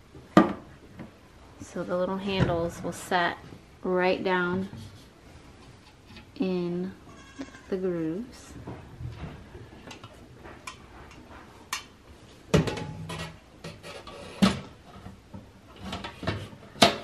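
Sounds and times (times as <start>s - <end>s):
metal pail and lid clanking: 12.5s - 14.7s.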